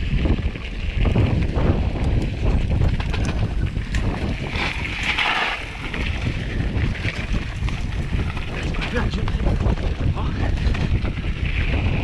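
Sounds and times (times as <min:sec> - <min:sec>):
wind buffeting microphone: 0:00.0 - 0:12.0
bike knocks and rattles: 0:00.1 - 0:12.0.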